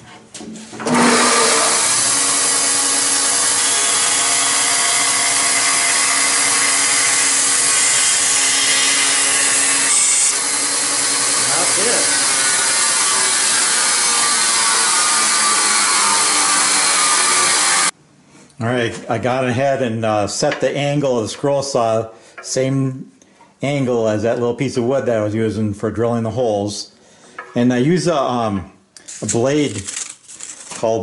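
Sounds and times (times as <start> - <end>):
bandsaw cutting wood: 0.8 - 17.9
motor hum: 0.8 - 17.9.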